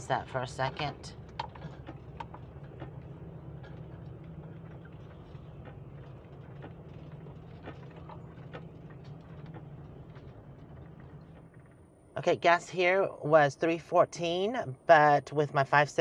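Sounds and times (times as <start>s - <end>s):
motorhome engine running: 0.0s - 12.9s
light clicks and rattles: 0.5s - 12.1s.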